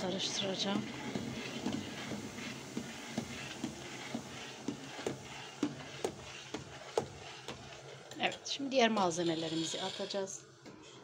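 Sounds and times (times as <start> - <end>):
metal spoon scraping steel pot: 8.3 - 10.4.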